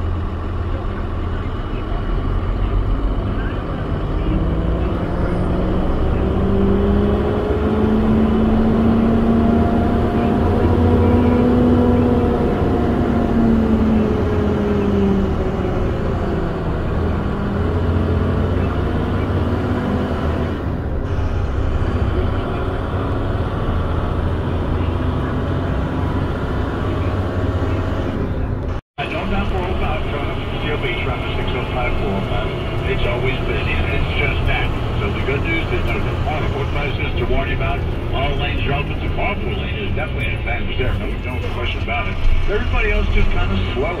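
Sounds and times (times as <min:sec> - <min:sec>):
diesel truck engine rumbling: 0:00.0 - 0:44.0.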